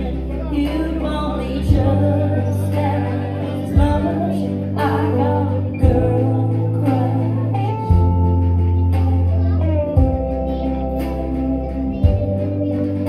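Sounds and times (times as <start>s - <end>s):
woman singing country song: 0.0s - 8.5s
backing track: 0.0s - 13.0s.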